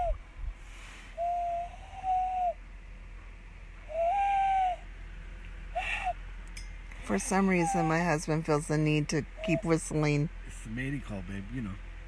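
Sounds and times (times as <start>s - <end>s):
man whistling long low notes: 0.0s - 0.2s, 1.1s - 2.6s, 3.9s - 4.9s, 5.8s - 6.2s.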